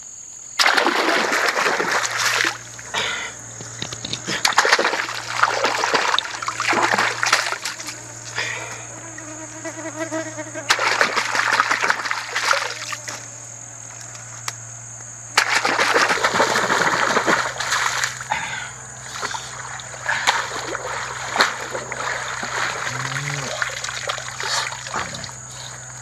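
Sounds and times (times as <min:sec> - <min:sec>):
hands splashing in stream water: 0:00.6 - 0:02.8, 0:04.4 - 0:08.0, 0:10.7 - 0:13.0, 0:15.4 - 0:18.3, 0:19.1 - 0:25.2.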